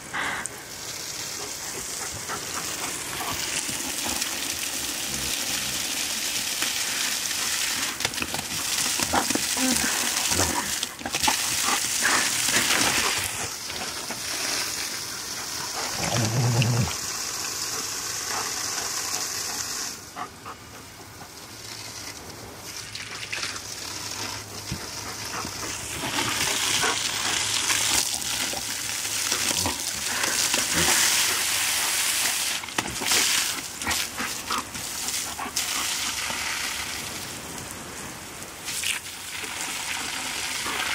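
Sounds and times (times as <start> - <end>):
hose spray hissing on grass: 0.0 - 20.6, 21.3 - 40.9
dog low vocal sound: 15.4 - 17.0.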